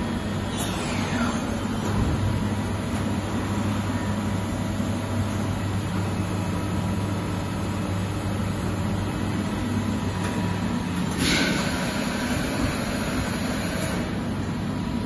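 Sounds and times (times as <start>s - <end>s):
factory machinery hum: 0.0s - 15.0s.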